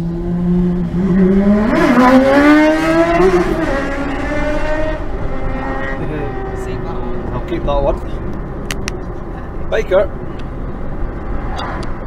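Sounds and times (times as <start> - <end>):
motorcycle accelerating: 0.0 - 9.4.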